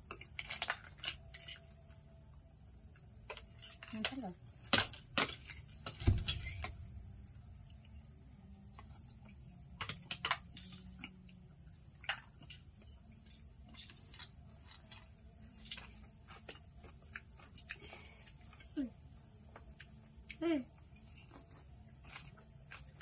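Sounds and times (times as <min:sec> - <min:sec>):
utensils clicking in a mortar: 0:00.0 - 0:01.7
high insect calls: 0:00.0 - 0:23.0
dull thump: 0:06.0 - 0:07.3.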